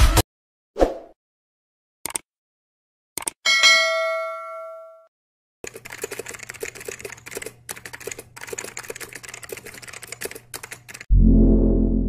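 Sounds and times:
fast keyboard typing: 5.6 - 11.1.

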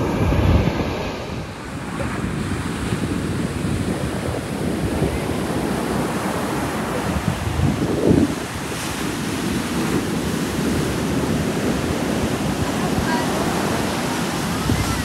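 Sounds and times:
ocean surf breaking: 0.0 - 15.0
wind buffeting microphone: 0.0 - 15.0.

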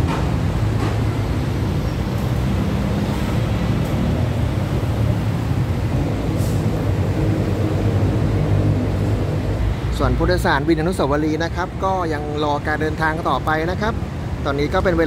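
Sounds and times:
road traffic: 0.0 - 15.0.

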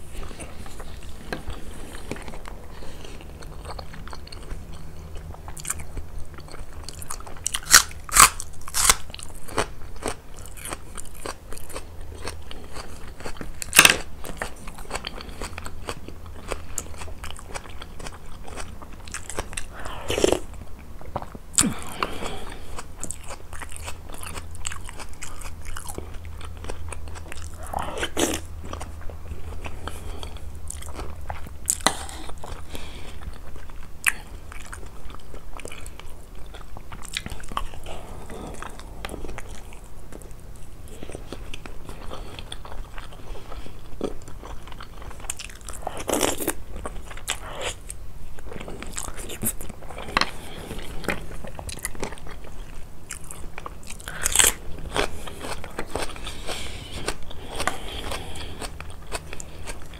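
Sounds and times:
steady low hum: 0.0 - 59.9
wet chewing: 0.0 - 59.9
crunching onion bites: 0.2 - 59.9.

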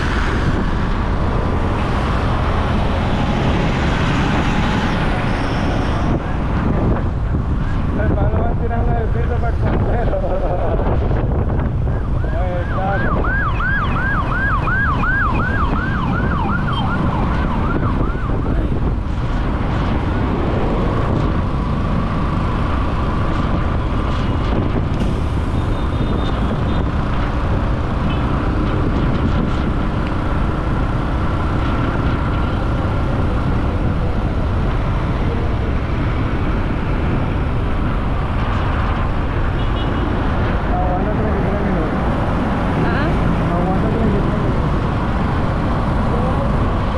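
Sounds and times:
motorcycle road and traffic noise: 0.0 - 46.9
wind buffeting microphone: 0.0 - 46.9
siren yelping: 11.8 - 18.7.

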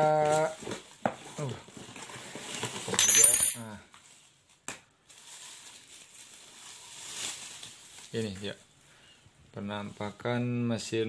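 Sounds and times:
plastic and bubble wrap crinkling: 0.0 - 3.0, 3.6 - 9.0.

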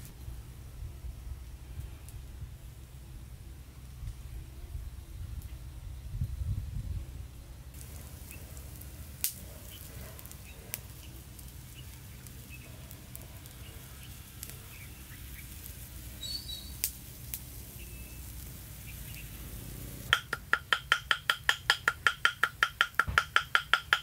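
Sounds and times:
steady low rumble: 0.0 - 20.1
wood fire crackling and popping: 7.7 - 24.0
faint bird chirps: 16.2 - 16.8.

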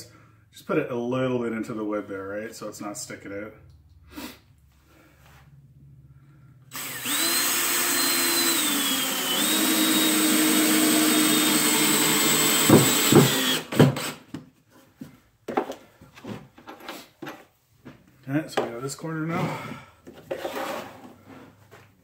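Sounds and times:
cordless drill motor whine: 6.7 - 14.1.

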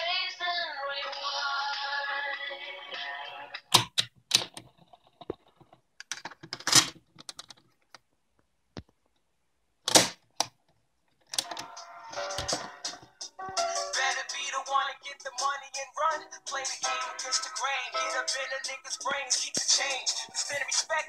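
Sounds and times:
music from cassette player: 11.4 - 21.0.

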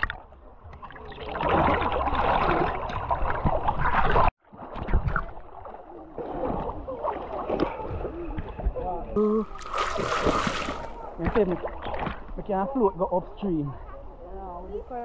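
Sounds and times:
river water splashing and rushing: 9.2 - 12.3.

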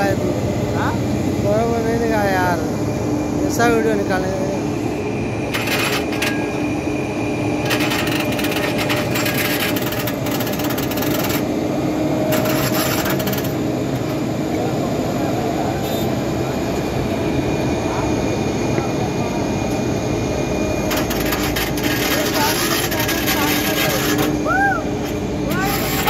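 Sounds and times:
jet engines running: 0.0 - 26.0.

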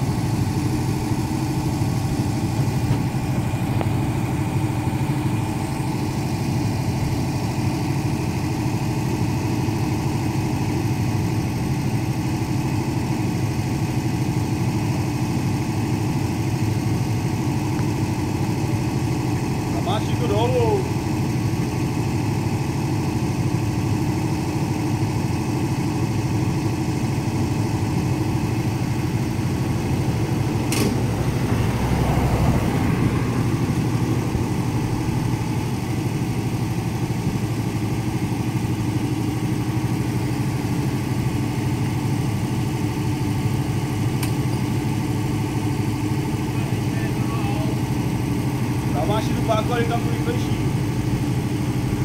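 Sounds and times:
combine harvester engine running: 0.0 - 52.0
car passing: 30.0 - 35.3
sharp click: 30.7 - 31.0.

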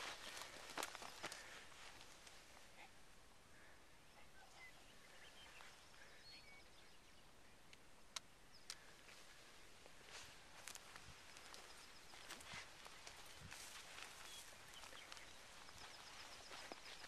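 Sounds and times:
faint open-air hiss: 0.0 - 17.0
faint bird chirps: 3.5 - 17.0.

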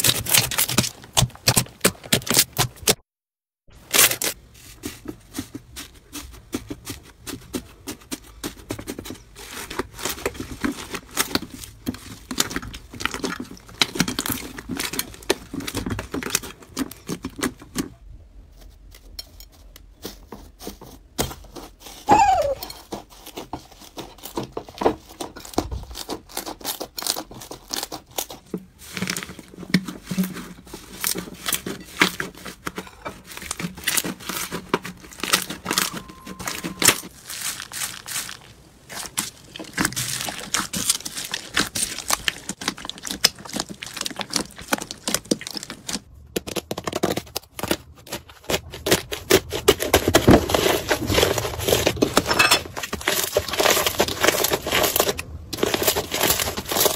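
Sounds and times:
metal foil crinkling: 0.0 - 3.0, 3.8 - 17.9, 21.8 - 56.9
sharp squeak falling in pitch: 22.1 - 22.7, 35.5 - 37.1
slime crackling and popping: 33.3 - 56.9.

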